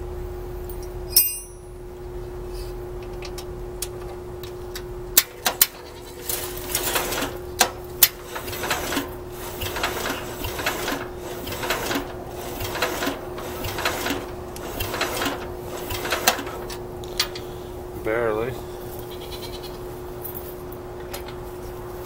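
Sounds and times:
engine cranking without starting: 5.2s - 17.5s.

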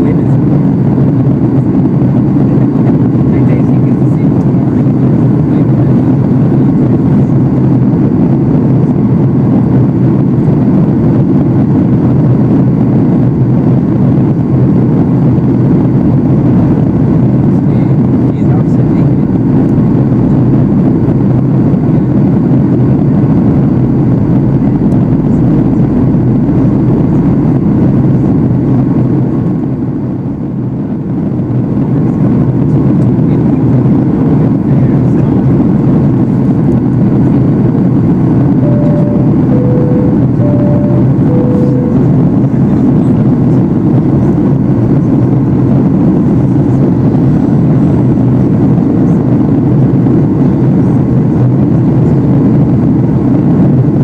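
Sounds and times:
airplane cabin engine drone: 0.0s - 54.0s
short cabin chime tones: 38.6s - 42.3s.

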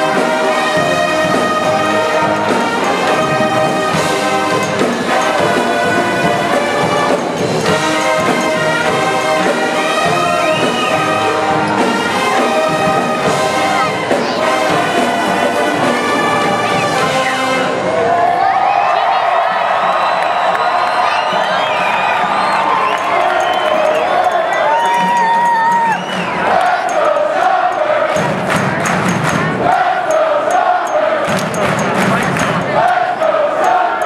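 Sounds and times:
drum kit: 0.0s - 17.4s, 20.4s - 30.0s, 31.2s - 32.8s
brass section playing: 0.0s - 18.1s.

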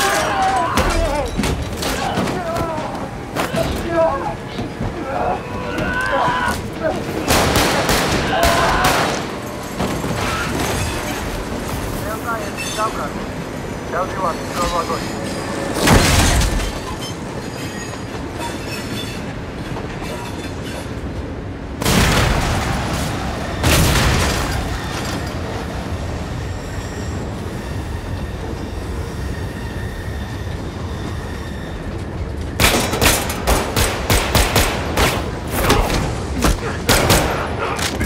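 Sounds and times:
train wheels rumbling on rails: 0.0s - 38.0s
rapid gunfire: 32.6s - 35.3s.

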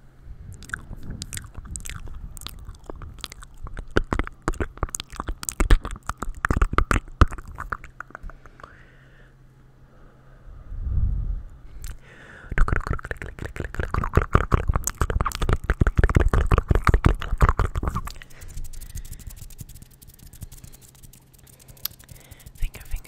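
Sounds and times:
wet mouth clicks and pops: 0.5s - 8.8s, 11.8s - 23.0s
low rumble: 10.3s - 12.0s
faint scattered ticks: 12.7s - 23.0s.

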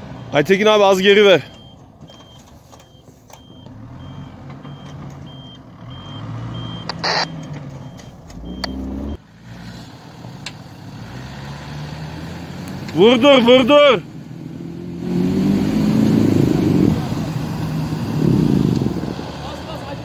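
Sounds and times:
reverse beeper: 3.4s - 9.2s.

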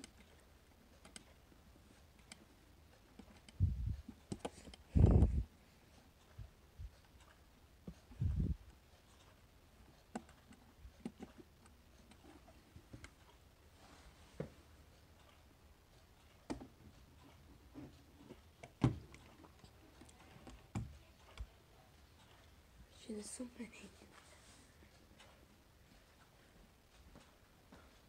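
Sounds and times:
wall clock being handled: 16.2s - 21.5s.

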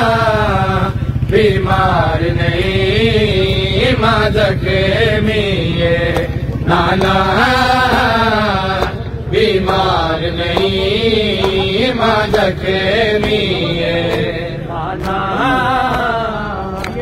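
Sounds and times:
man chanting a lament amplified: 0.0s - 17.0s
crowd smacks: 7.8s - 15.3s.

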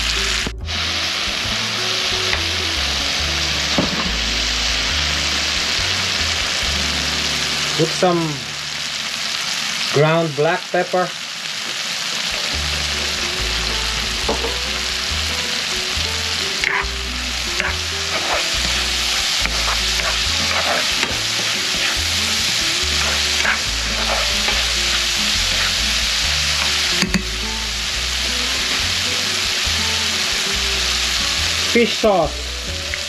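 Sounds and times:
vegetables sizzling in a pan: 0.0s - 33.0s
spatula scraping a pan: 16.5s - 27.5s.

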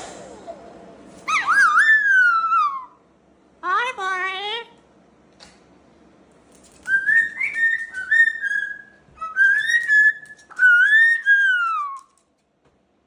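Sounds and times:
cockatoo whistling: 1.2s - 3.0s, 6.8s - 12.2s.

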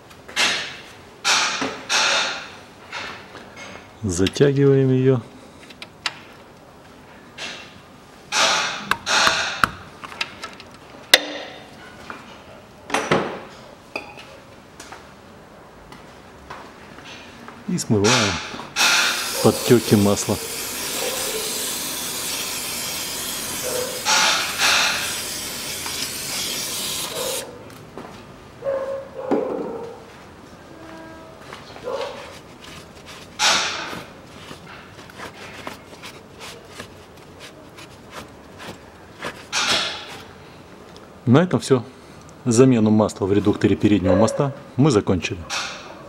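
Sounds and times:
aerosol spray hissing: 18.8s - 27.5s.

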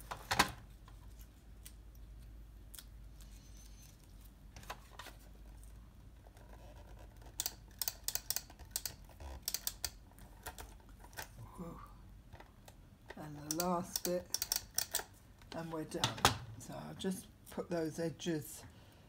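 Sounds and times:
glue tape runner clicks: 13.5s - 15.1s.

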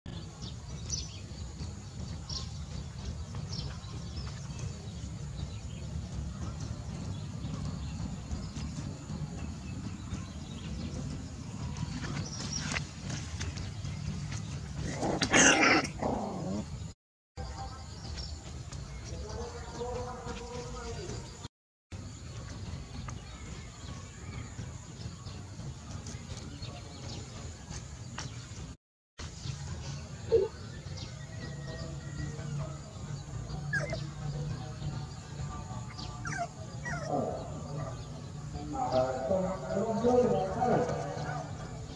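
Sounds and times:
low rural background: 0.1s - 41.9s.

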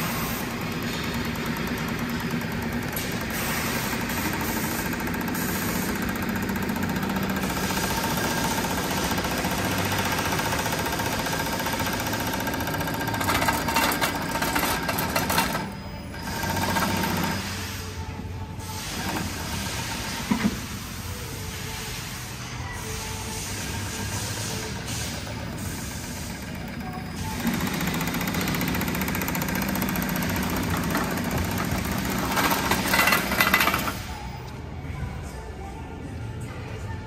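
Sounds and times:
machine clattering: 0.0s - 17.6s, 24.5s - 34.2s
sewing machine running: 0.0s - 18.0s, 24.4s - 34.3s.

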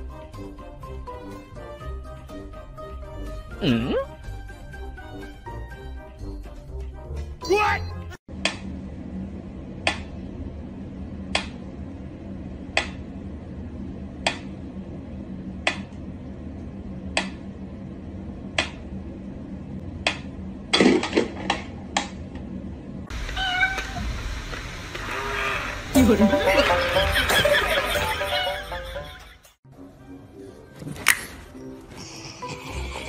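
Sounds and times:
cat meowing loudly: 23.2s - 24.1s, 25.0s - 25.8s.

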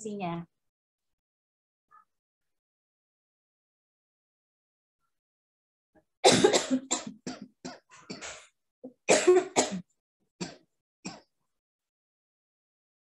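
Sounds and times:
person coughing: 6.2s - 11.3s.

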